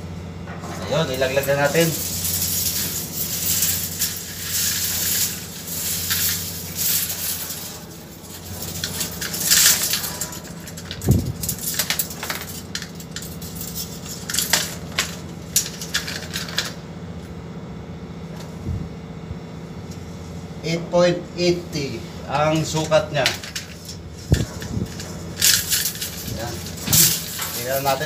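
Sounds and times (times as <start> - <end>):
machinery hum: 0.0 - 28.0
metal tape rattling in steel pipe: 0.9 - 16.8, 22.7 - 28.0.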